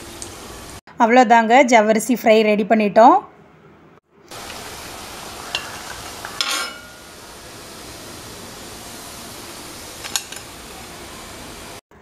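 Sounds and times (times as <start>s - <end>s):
steady hiss: 4.3s - 11.8s
metal ladle clinking against pan: 5.5s - 7.0s.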